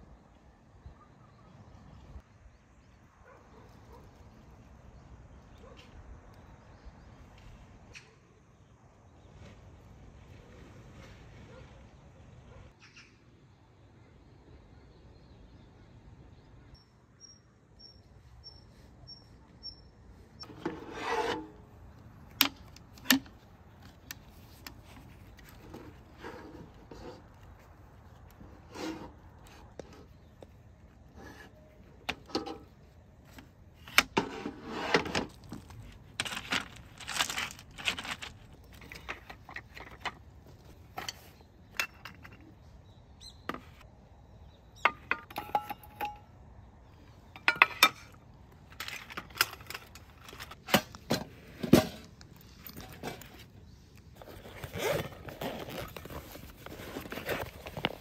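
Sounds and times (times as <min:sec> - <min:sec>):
rustling: 0:20.4 - 0:41.5, 0:48.5 - 0:58.0
metal clinks and knocks: 0:44.8 - 0:46.4, 0:47.3 - 0:51.9.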